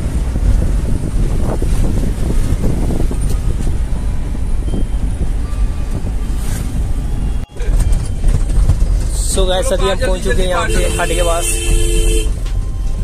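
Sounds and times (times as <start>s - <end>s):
wind rumble on microphone: 0.0s - 9.4s
vehicle moving: 0.0s - 13.0s.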